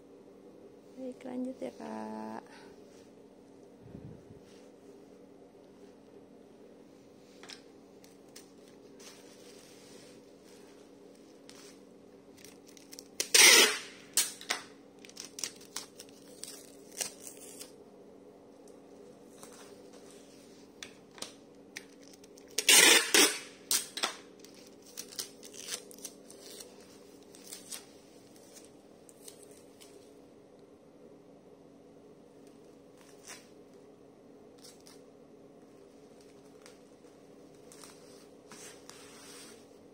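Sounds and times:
faint steady hum: 0.0 - 39.9
plastic wrap crackling: 11.4 - 17.8, 21.8 - 30.0
packing material ripping: 12.3 - 17.8, 21.9 - 30.0.

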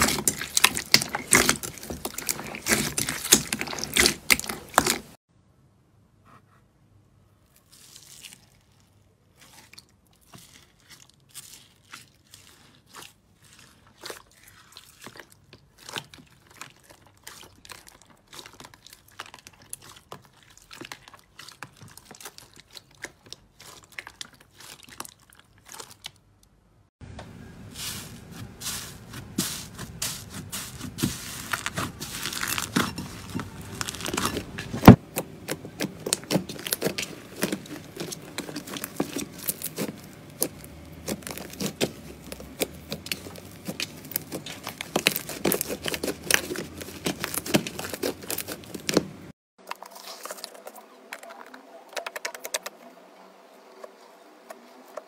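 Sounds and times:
hands squeezing crunchy slime: 0.0 - 5.2, 7.5 - 26.3, 27.7 - 51.4
slime crackling and tearing: 0.0 - 5.2, 7.6 - 26.3, 27.9 - 49.3.

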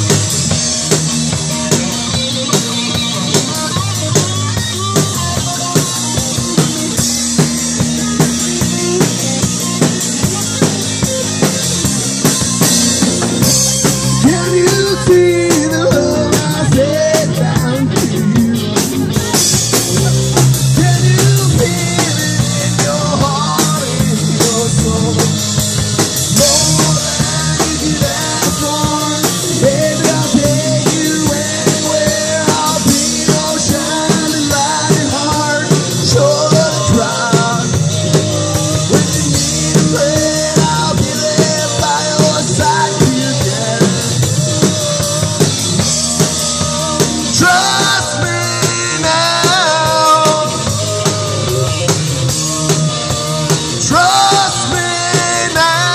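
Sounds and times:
drum kit beat: 0.0 - 55.9
guitar: 0.0 - 55.9.

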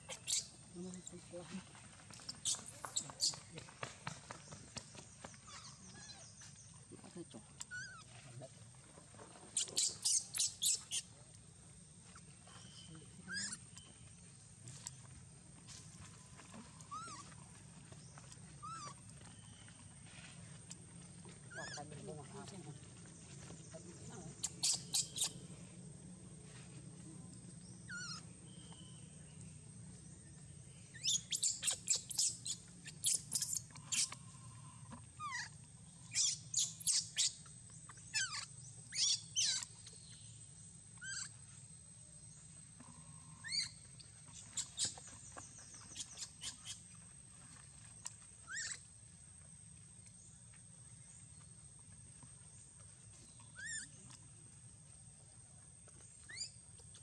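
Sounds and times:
baby monkey squeaking: 0.0 - 0.6, 2.2 - 3.5, 5.4 - 6.4, 7.6 - 8.1, 9.6 - 11.1, 13.2 - 13.8, 16.9 - 17.3, 18.6 - 19.0, 21.5 - 21.9, 24.3 - 25.4, 27.9 - 28.3, 30.9 - 34.2, 35.2 - 35.5, 36.1 - 39.7, 41.0 - 41.4, 43.4 - 45.1, 45.8 - 46.8, 48.4 - 48.8, 53.5 - 54.0, 56.2 - 56.6.

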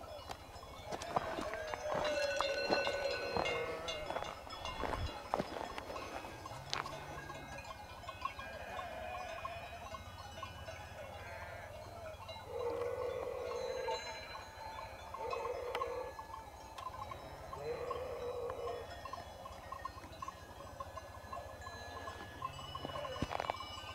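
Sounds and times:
sheep bells clinking: 0.0 - 23.9
sheep bleating: 0.9 - 4.2, 8.4 - 9.8, 11.2 - 11.7.

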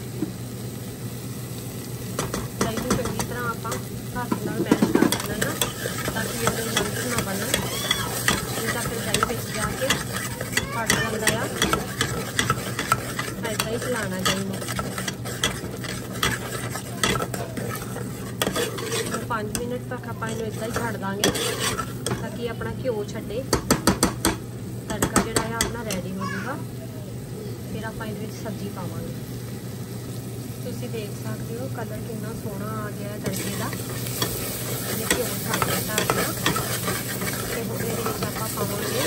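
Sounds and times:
masala sizzling: 0.0 - 39.0
steel spoon scraping a pot: 3.2 - 22.3, 33.2 - 39.0
spoon clicking against metal: 35.1 - 38.2.

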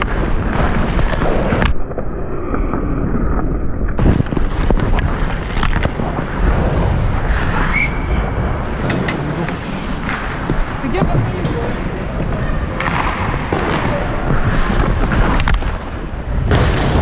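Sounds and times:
ice skates scraping on ice: 0.0 - 1.7, 4.0 - 16.5
hockey stick striking puck: 8.9 - 16.8.

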